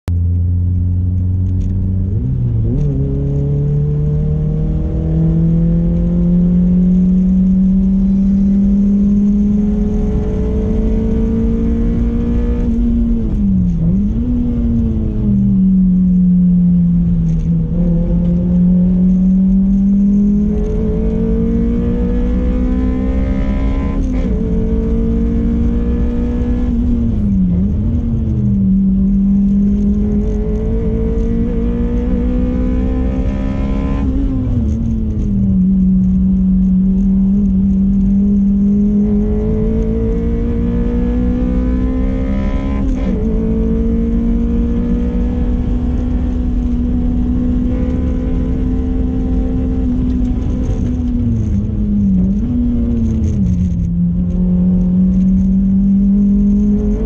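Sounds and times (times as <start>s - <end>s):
car engine revving hard: 2.5s - 15.2s, 17.3s - 28.0s, 28.9s - 35.2s, 37.3s - 51.5s.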